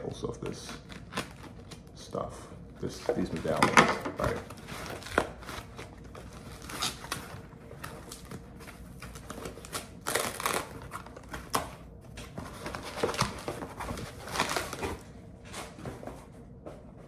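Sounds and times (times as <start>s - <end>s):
rustling of wrapping: 4.2s - 15.7s.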